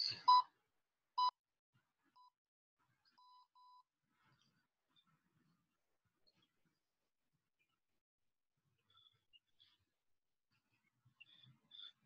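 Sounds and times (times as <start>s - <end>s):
electronic timer beeps: 0.0s - 0.5s.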